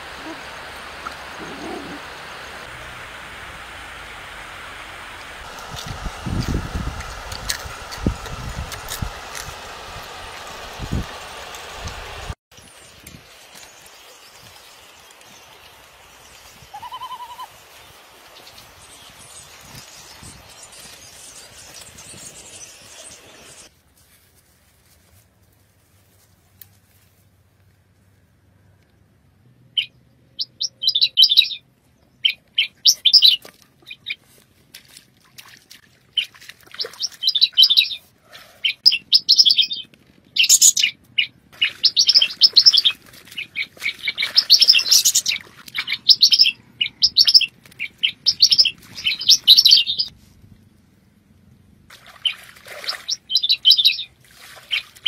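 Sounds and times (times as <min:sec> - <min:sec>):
small birds chirping: 0:12.6 - 0:23.7, 0:38.6 - 0:50.1, 0:52.2 - 0:54.1.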